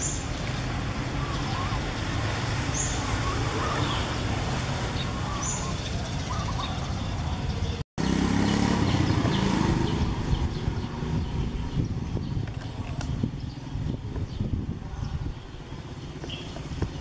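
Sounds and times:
outdoor background rumble: 0.0s - 17.0s.

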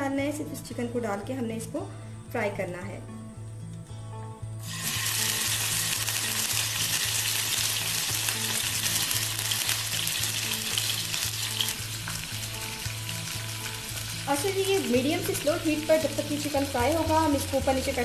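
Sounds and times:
chicken sizzling in oil: 4.6s - 18.0s.

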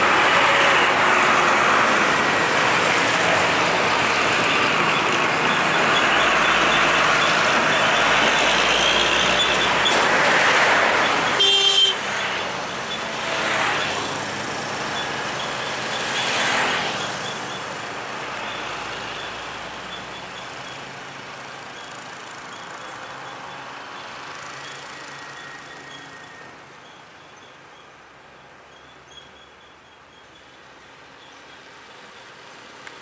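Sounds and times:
road traffic passing: 0.0s - 33.0s
vehicle horn blast: 11.3s - 12.0s.

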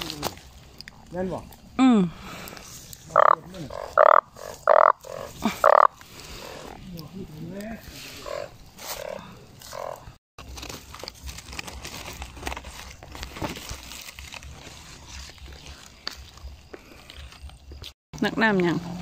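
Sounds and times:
dry leaves rustling: 0.0s - 1.4s, 5.2s - 17.9s
frogs croaking: 0.9s - 10.2s.

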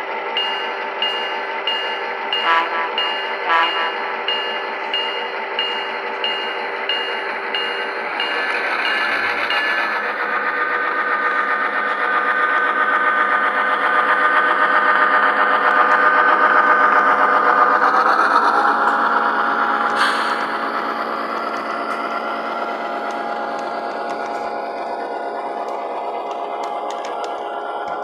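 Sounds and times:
model train diesel engine sound: 0.0s - 28.0s
bell dinging: 0.4s - 10.0s.

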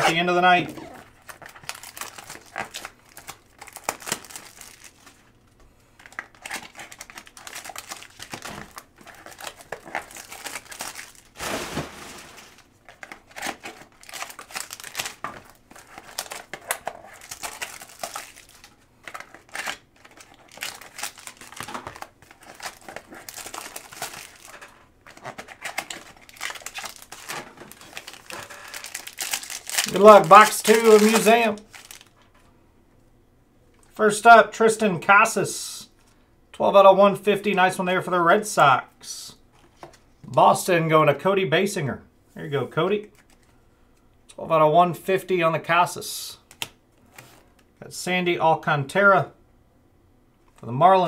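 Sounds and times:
packaging crinkling and rustling: 0.9s - 32.4s.

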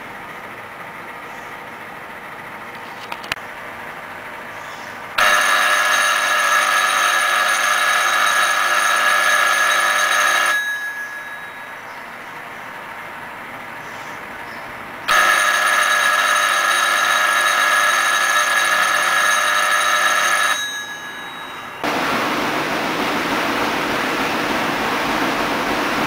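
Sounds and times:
electric school bell ringing: 5.2s - 12.3s, 15.1s - 22.0s
steady hiss-like noise: 21.8s - 26.0s.

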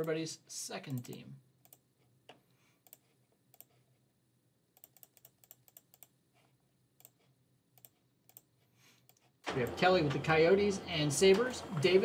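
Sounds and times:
keyboard and mouse clicking: 0.9s - 3.8s, 4.8s - 6.2s, 7.0s - 9.8s.

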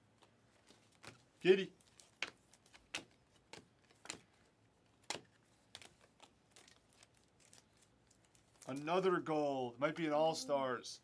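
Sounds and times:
trading cards being flipped: 0.2s - 8.8s.

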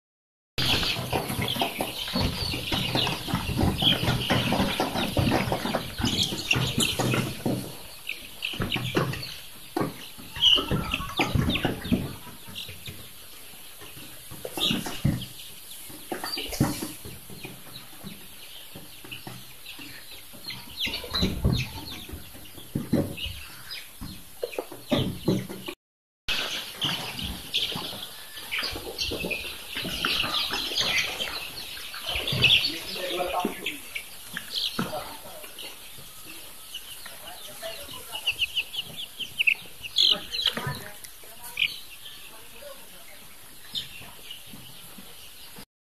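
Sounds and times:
knocks and bumps: 0.6s - 13.2s
chicks peeping and cheeping: 0.6s - 45.7s.

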